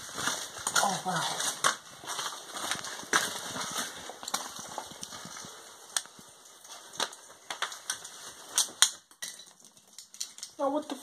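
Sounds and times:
footsteps crunching on loose rock: 0.0 - 10.4
rustling: 0.0 - 11.0.

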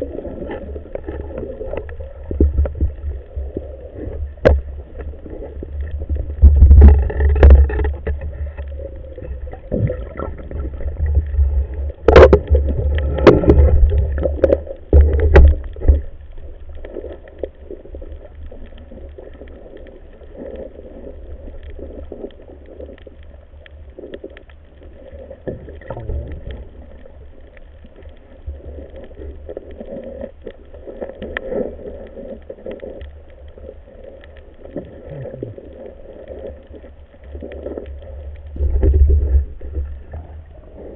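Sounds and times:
muffled underwater rumble: 0.0 - 40.9.

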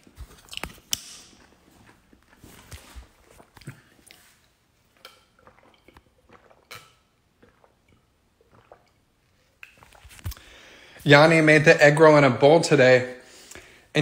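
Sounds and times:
man sipping and swallowing: 0.0 - 11.0.

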